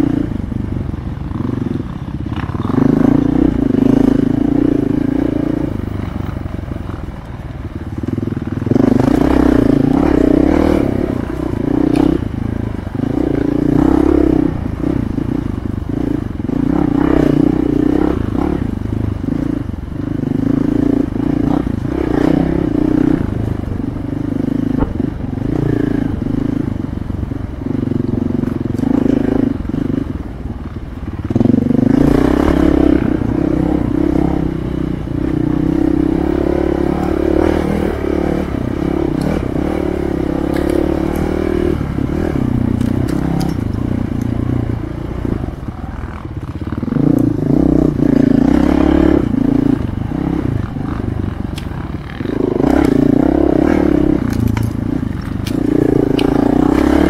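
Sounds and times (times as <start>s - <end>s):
motorcycle engine under load: 0.0s - 57.0s
knocks and scrapes on rough ground: 54.2s - 57.0s.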